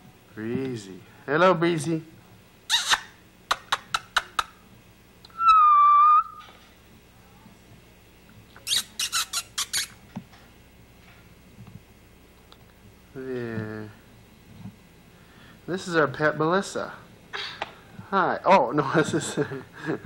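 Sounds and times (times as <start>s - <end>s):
mouth clicks: 2.7s - 4.6s, 8.5s - 10.0s
short even-pitched whistle: 5.3s - 6.5s.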